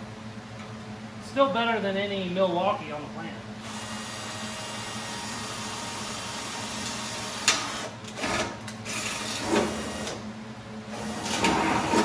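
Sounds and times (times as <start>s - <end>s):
cordless drill running: 3.6s - 8.3s.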